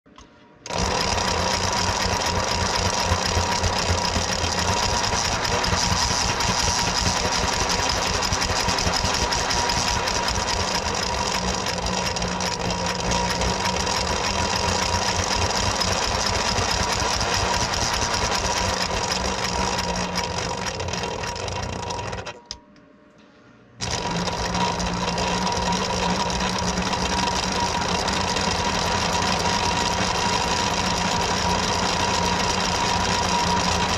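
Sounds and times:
model locomotive motor whirring: 0.6 - 22.6, 23.8 - 33.9
wheels whining on rollers: 0.6 - 22.6, 23.8 - 33.9.

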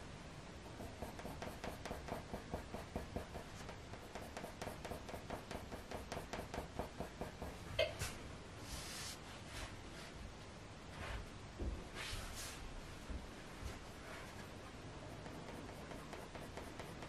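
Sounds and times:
coloured pencil scratching on paper: 0.6 - 7.6, 15.1 - 17.0.

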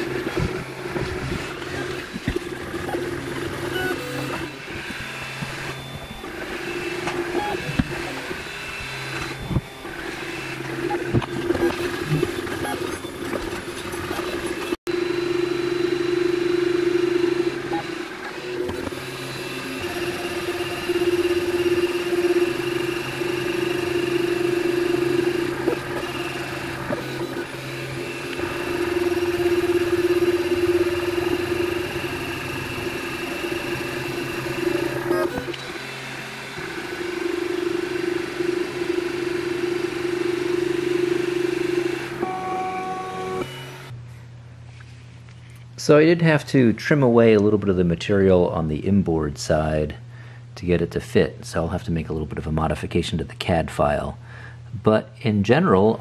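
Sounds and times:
stepper motors whining: 0.0 - 44.0.

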